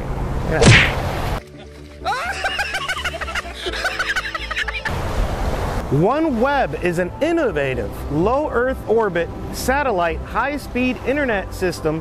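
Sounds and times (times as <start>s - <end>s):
music: 1.4s - 4.9s, 5.9s - 12.0s
high-pitched snickering laughter: 2.0s - 4.9s.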